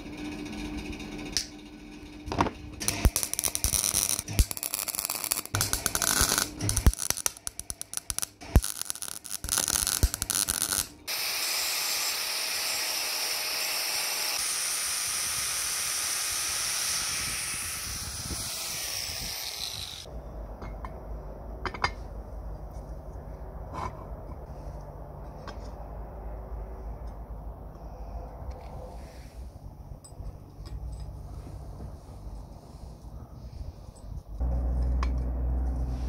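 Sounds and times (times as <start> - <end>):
welding arc crackling: 2.8 - 11.1
angle grinder grinding metal: 2.8 - 20.1
low hum: 16.6 - 36.0.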